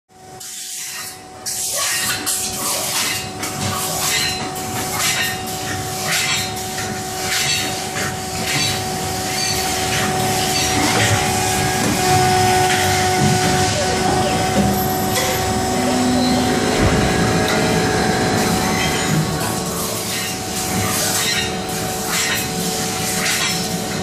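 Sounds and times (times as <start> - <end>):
machine hum: 6.6 - 24.0.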